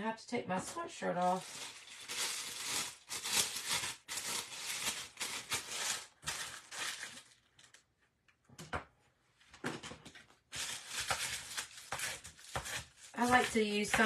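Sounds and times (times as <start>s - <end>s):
plastic bag crinkling: 1.2s - 7.9s, 10.5s - 14.0s.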